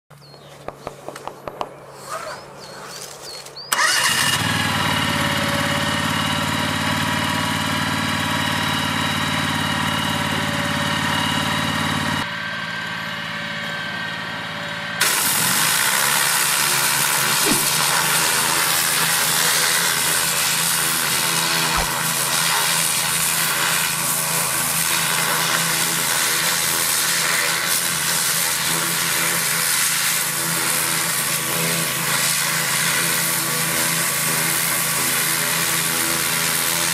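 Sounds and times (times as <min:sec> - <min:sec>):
pressure washer running: 0:03.7 - 0:36.9
hissing high-pressure water jet: 0:15.0 - 0:36.9.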